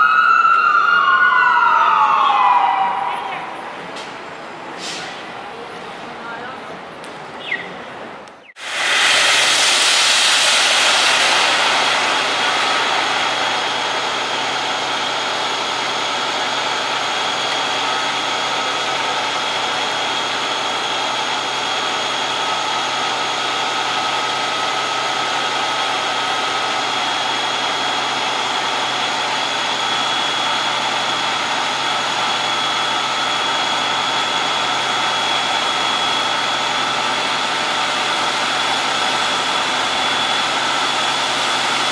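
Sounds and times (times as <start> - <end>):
fire engine pump drone: 0.0 - 41.9
hose spray hiss: 8.6 - 13.7
high whine: 8.6 - 41.9.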